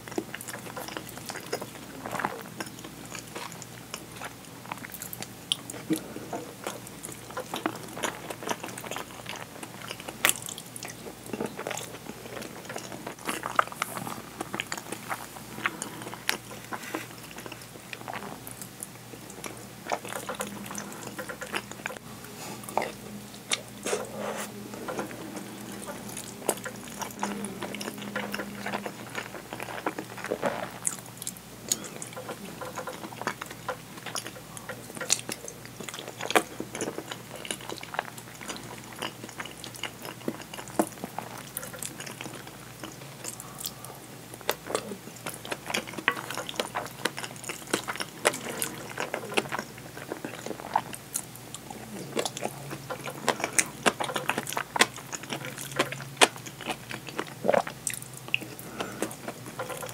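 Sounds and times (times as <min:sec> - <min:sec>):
chewing and wet mouth sounds: 0:00.0 - 0:59.9
wooden spoon scraping bowl: 0:23.8 - 0:26.0.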